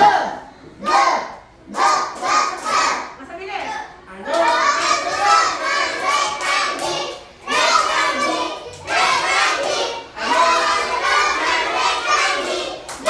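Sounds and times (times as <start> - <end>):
children chanting phrases: 0.0 - 13.0.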